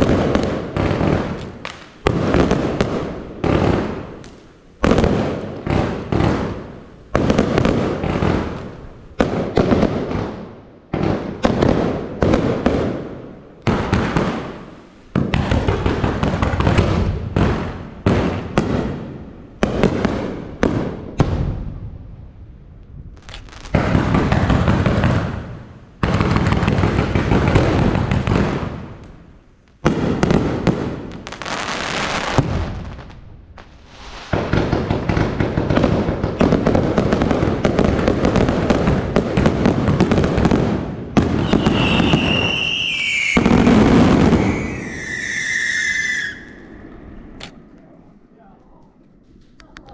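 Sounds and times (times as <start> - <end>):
fireworks crackling bursts: 0.0 - 49.9
falling firework whistles: 31.4 - 34.5, 41.2 - 47.1.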